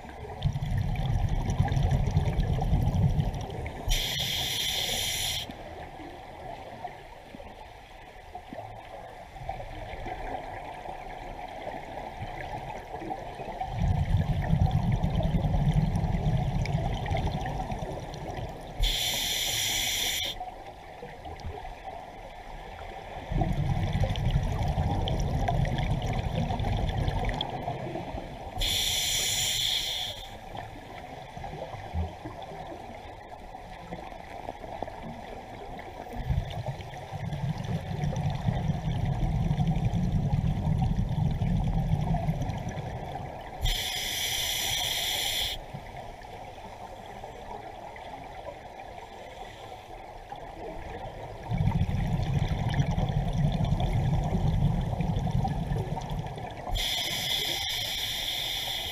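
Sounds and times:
underwater bubbling: 0.0 - 58.9
regulator hissing inhalation: 3.9 - 5.5, 18.8 - 20.4, 28.6 - 30.4, 43.6 - 45.6, 56.7 - 58.9.

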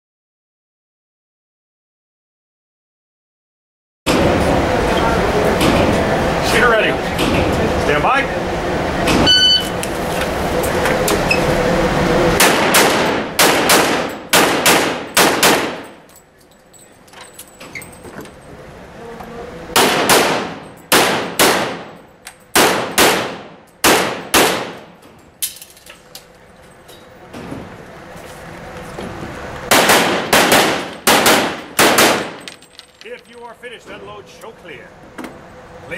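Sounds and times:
shot timer beep: 9.2 - 9.8
rapid pistol fire echoing: 12.4 - 15.9, 19.8 - 21.9, 22.6 - 24.9, 29.7 - 32.4.

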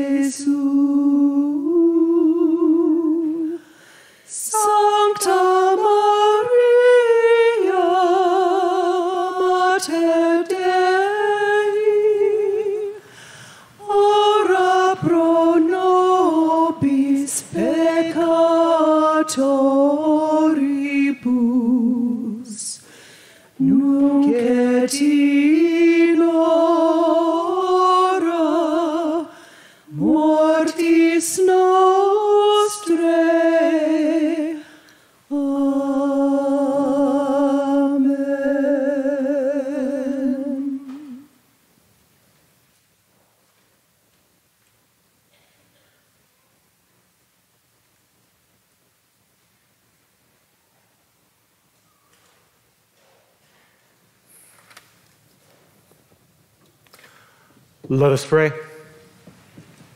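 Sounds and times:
woman singing a hymn: 0.0 - 13.1, 13.8 - 41.4.

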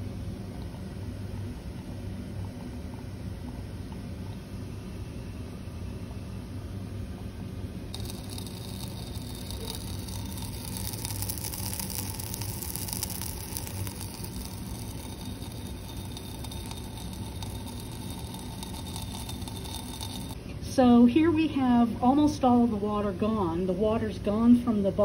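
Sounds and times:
steady low hum: 0.0 - 25.0
solution sizzling and crackling: 7.9 - 20.4.

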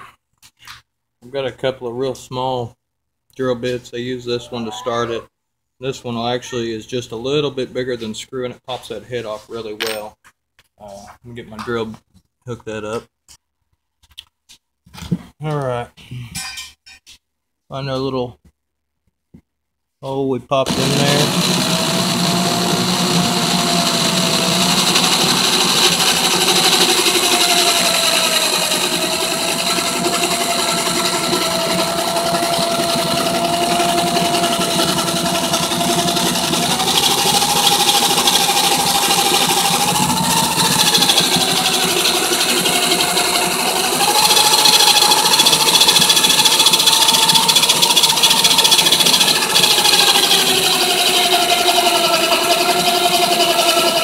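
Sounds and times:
electric drill whining: 20.7 - 54.0.

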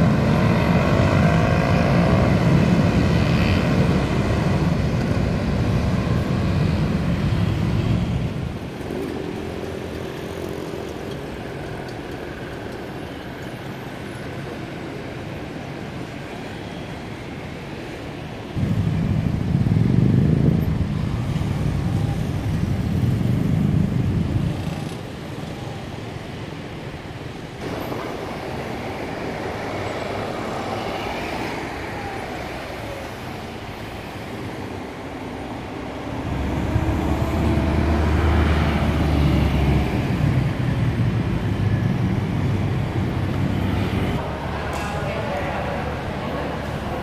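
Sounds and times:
cars passing on street: 0.0 - 47.0
vehicle engine droning: 35.2 - 47.0.

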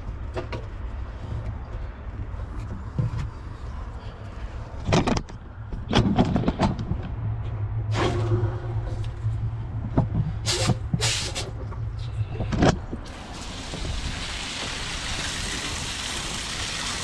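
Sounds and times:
water jet spraying onto water: 13.1 - 17.0.

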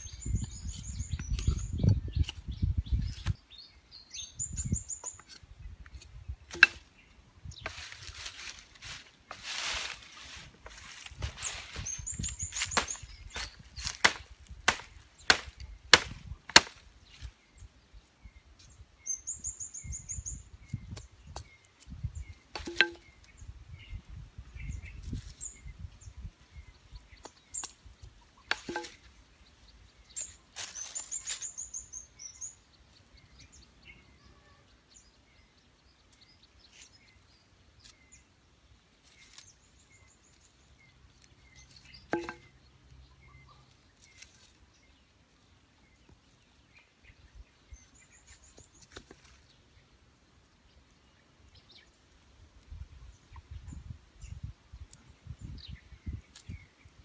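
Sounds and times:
machete chopping wooden stick: 6.0 - 6.9, 12.6 - 16.9, 22.5 - 23.1, 28.5 - 29.1, 42.1 - 42.5.

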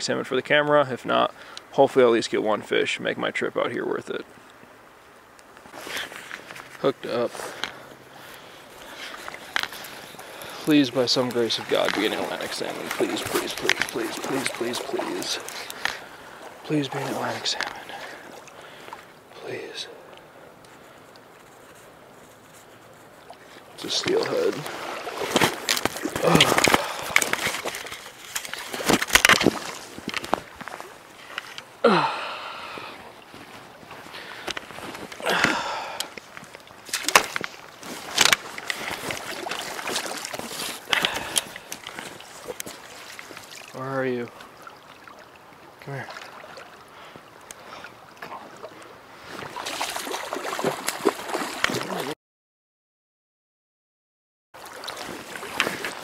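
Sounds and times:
flowing creek: 0.0 - 52.2, 54.6 - 56.0
fish splashing in water: 9.2 - 16.6, 23.8 - 30.1, 38.2 - 43.8, 49.4 - 52.1, 54.6 - 56.0.

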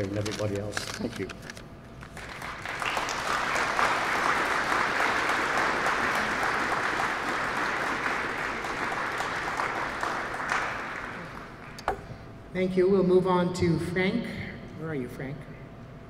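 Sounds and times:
audience applauding: 2.1 - 11.8.

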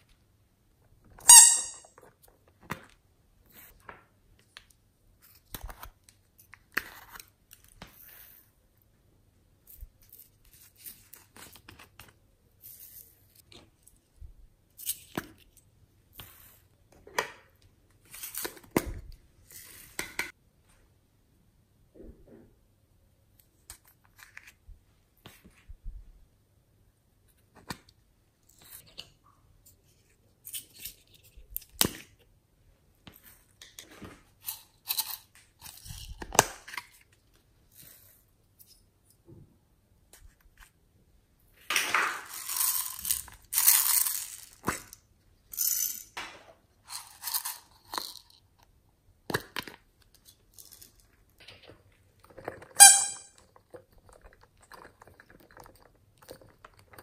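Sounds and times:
slime squeak: 1.2 - 1.8, 52.7 - 53.2.

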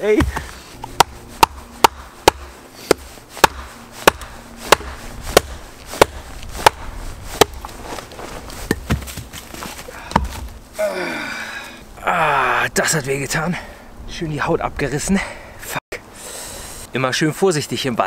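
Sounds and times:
mallet knocking wooden wedges: 0.1 - 6.8
man crying out in pain: 10.8 - 12.7.

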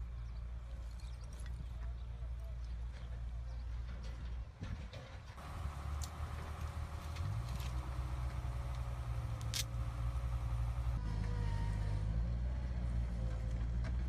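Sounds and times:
low outdoor rumble: 5.4 - 14.0.

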